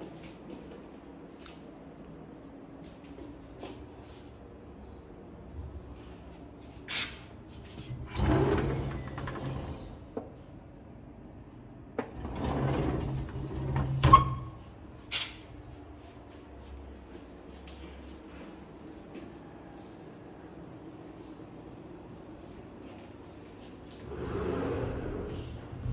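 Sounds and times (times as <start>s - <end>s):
sliding window scraping along track: 7.7s - 10.1s, 12.1s - 14.4s, 24.0s - 25.9s.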